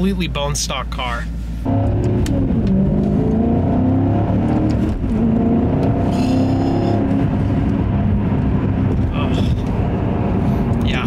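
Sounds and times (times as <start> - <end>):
car engine accelerating: 1.6 - 11.0.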